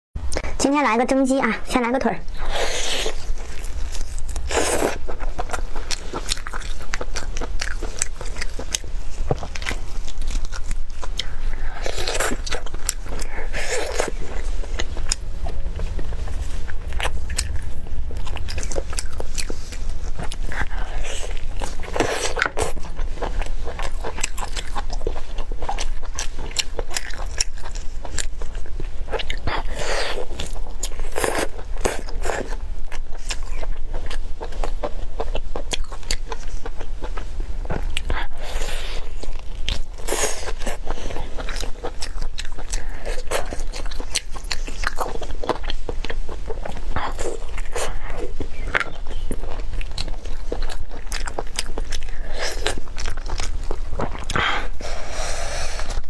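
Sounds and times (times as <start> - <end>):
low hum: 1.5 - 31.8
person chewing meat: 2.3 - 56.0.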